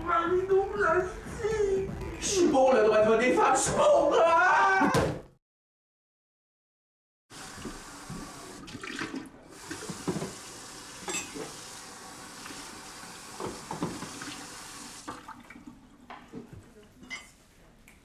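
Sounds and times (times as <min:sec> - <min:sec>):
tap water running into sink: 0:07.3 - 0:16.3
mugs and spoons clinking: 0:11.0 - 0:11.4.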